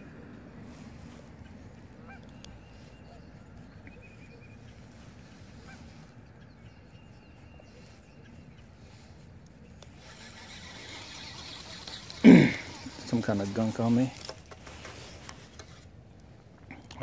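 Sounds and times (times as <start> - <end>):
goose-like honks: 2.0 - 2.3.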